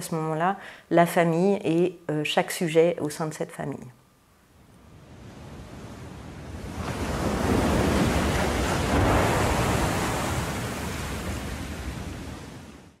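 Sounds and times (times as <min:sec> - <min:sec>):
ocean surf: 0:04.6 - 0:13.0.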